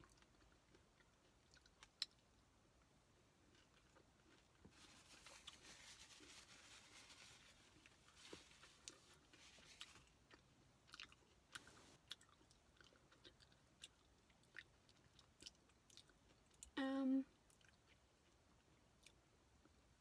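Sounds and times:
soft chewing: 0.0s - 20.0s
person humming: 16.8s - 17.3s.

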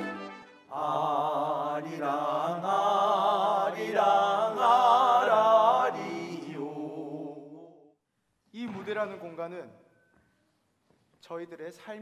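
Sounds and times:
men singing in harmony: 0.7s - 7.6s.

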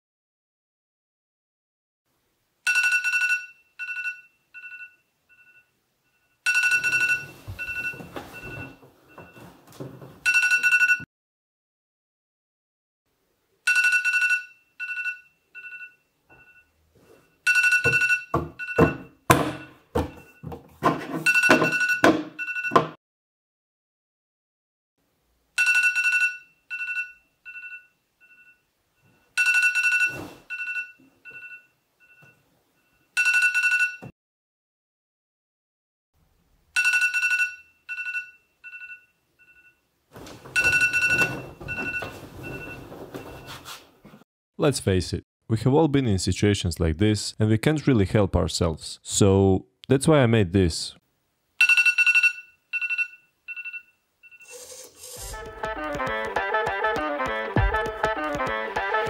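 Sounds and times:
phone alarm beeping: 2.7s - 9.5s, 10.2s - 11.1s, 13.7s - 20.5s, 21.2s - 23.0s, 29.3s - 34.1s, 36.8s - 39.8s, 40.5s - 43.6s, 51.6s - 54.8s
bedding rustling: 40.1s - 44.2s.

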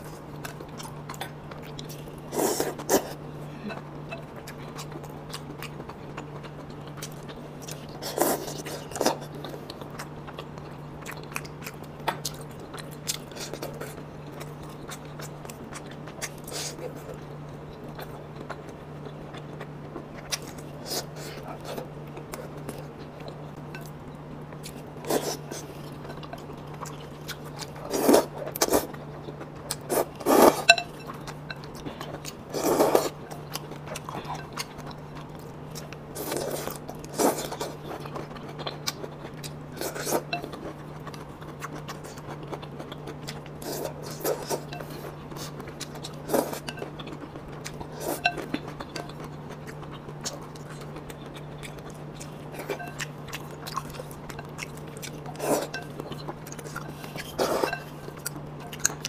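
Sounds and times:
steady low hum: 0.0s - 59.0s
chopsticks clinking on ceramic bowl: 30.6s - 31.7s.

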